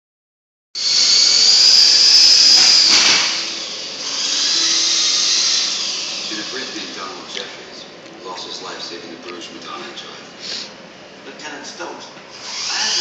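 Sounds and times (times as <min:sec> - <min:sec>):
toy helicopter motors whining: 0:00.8 - 0:07.2, 0:12.3 - 0:13.0.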